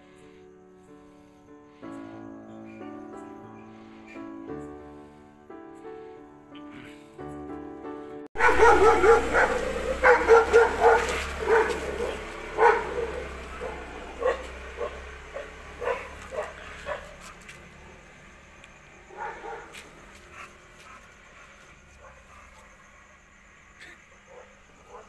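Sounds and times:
dogs barking: 8.4 - 25.0.

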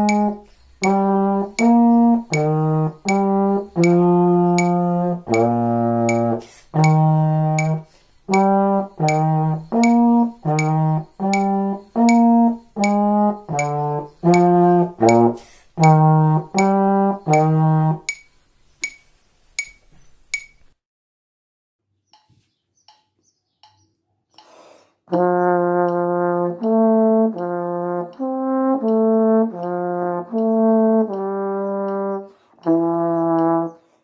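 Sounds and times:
trombone playing short notes: 0.0 - 18.1, 25.1 - 33.8
metronome clicking: 0.0 - 20.8, 22.1 - 33.8.

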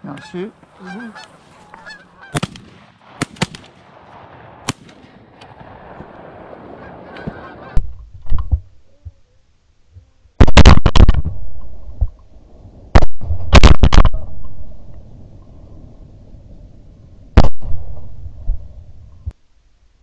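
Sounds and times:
geese honking: 0.0 - 2.5, 6.6 - 7.8
loud distorted shotgun blast: 2.3 - 7.9, 10.4 - 11.4, 12.9 - 14.4.

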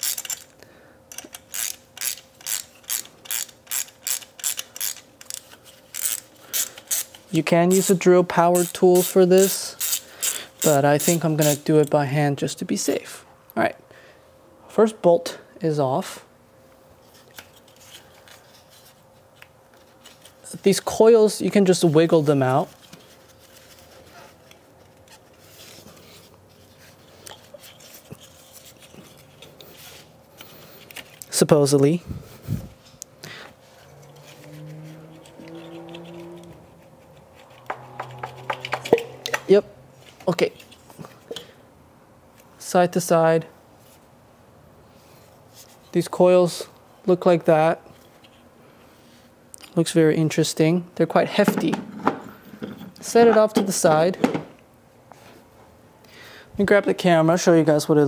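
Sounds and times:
ratchet wrench clicking: 0.0 - 0.5, 1.1 - 8.0, 8.6 - 11.6.

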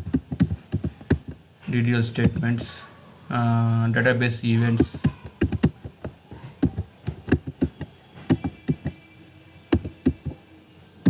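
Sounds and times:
computer keyboard typing: 0.0 - 1.4, 4.8 - 9.0, 9.7 - 10.4.

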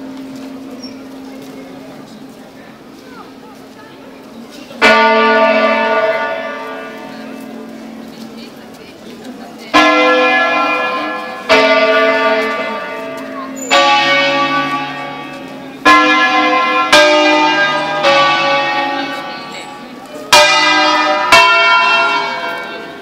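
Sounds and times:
church bell strokes: 4.8 - 8.4, 9.7 - 23.0.

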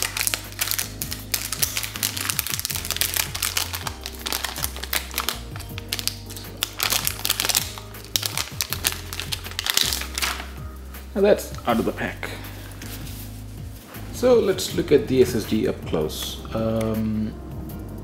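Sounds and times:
plastic bag crinkling and tearing: 0.0 - 10.6
background music: 0.0 - 18.0.

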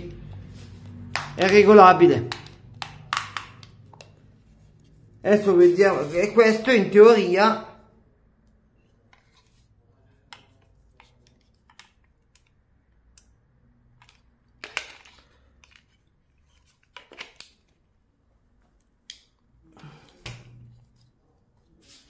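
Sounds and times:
plastic parts clicking: 14.0 - 17.8.

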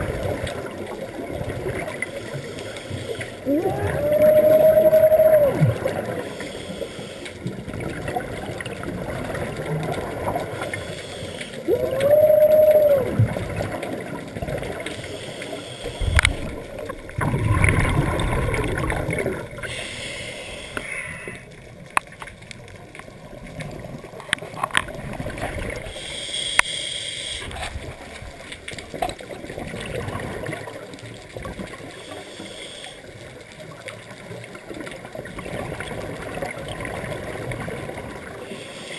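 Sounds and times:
bubbles gurgling: 3.4 - 6.3, 7.5 - 10.7, 11.6 - 14.9, 15.9 - 19.9, 23.1 - 26.0, 27.7 - 32.0
diver humming underwater: 3.4 - 6.4, 11.5 - 13.7
regulator breathing: 6.2 - 7.4, 10.6 - 11.8, 14.8 - 16.7, 19.6 - 21.5, 25.9 - 27.6.

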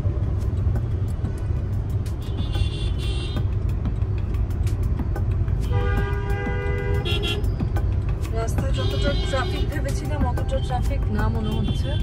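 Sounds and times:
traffic rumble from inside car: 0.0 - 12.0
vehicle horn blast: 5.6 - 7.4, 8.7 - 9.8.

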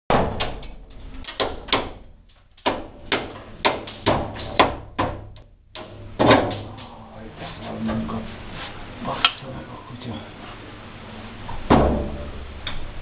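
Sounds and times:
hammer knocking glass from window frame: 2.6 - 6.7.

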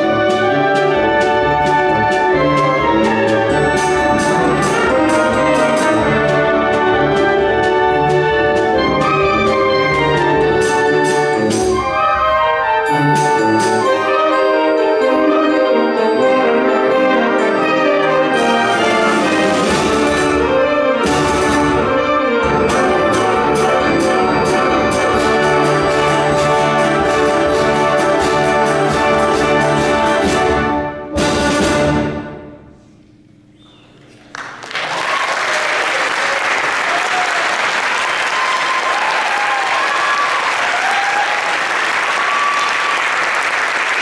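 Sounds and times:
concert band playing: 0.0 - 32.7.

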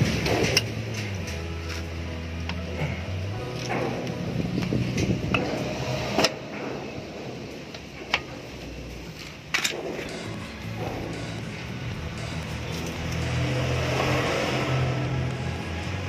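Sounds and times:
metal clinks and knocks: 9.1 - 14.1.

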